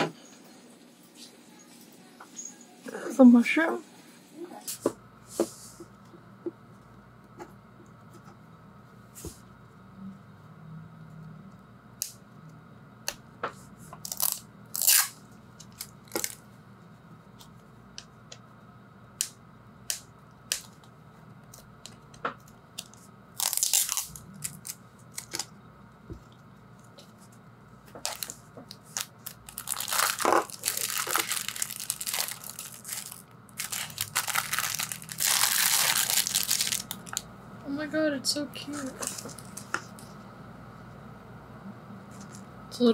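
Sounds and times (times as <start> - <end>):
plastic bag crinkling: 15.6 - 16.4, 23.4 - 25.5, 28.0 - 37.2, 38.7 - 40.0.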